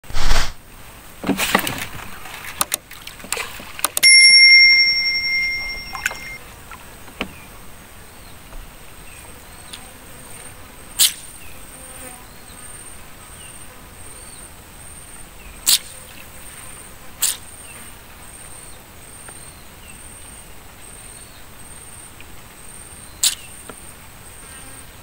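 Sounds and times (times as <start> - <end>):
knocks and rustles: 1.2 - 4.0
bell-like ding: 4.0 - 6.4.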